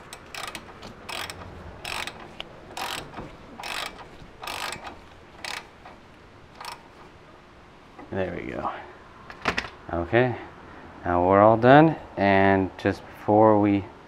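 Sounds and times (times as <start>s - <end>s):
ratchet pawl clicking: 0.0s - 6.0s, 6.6s - 7.0s.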